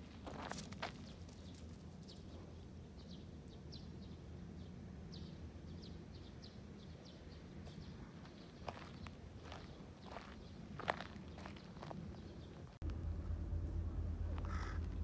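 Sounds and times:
low rumble: 10.8s - 15.0s.

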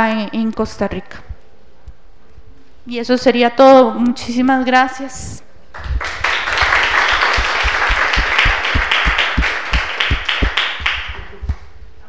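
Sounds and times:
audience applauding: 5.8s - 11.6s.

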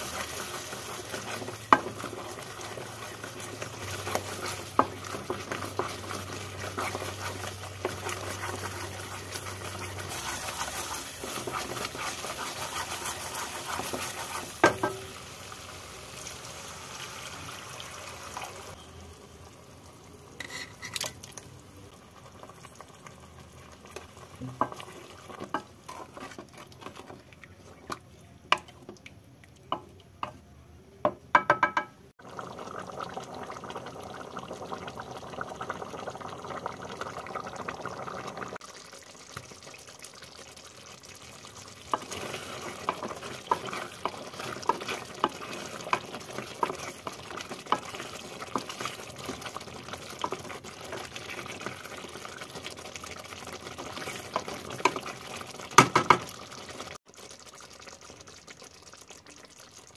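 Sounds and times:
thick sauce bubbling in a pot: 0.0s - 16.1s, 21.9s - 30.4s, 32.2s - 59.9s
wooden spatula knocking on pot: 14.6s - 15.0s, 31.0s - 32.0s.

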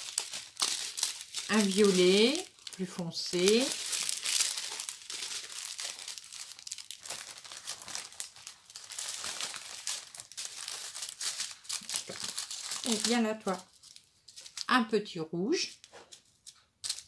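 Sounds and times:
plastic bags crinkling: 0.0s - 14.8s, 15.6s - 17.0s.

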